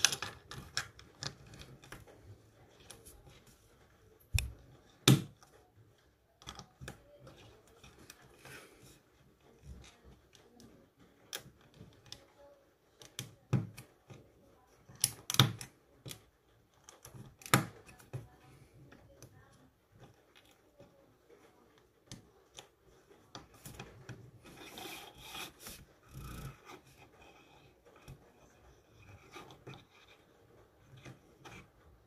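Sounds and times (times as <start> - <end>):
plastic bricks clicking together: 0.0 - 2.1.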